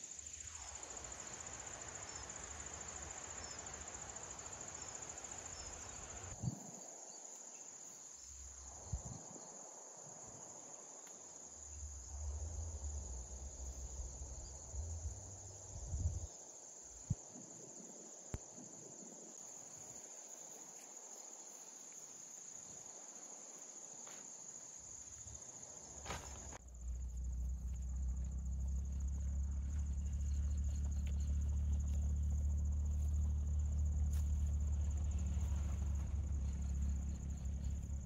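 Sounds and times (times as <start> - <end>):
crickets chirring: 0.0 - 38.0
low rumble: 11.8 - 16.3, 26.6 - 38.0.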